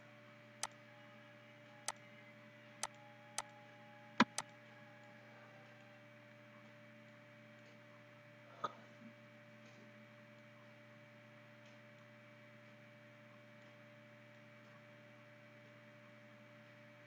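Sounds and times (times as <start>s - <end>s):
low electrical hum: 0.0s - 17.0s
sharp click: 4.2s - 4.5s.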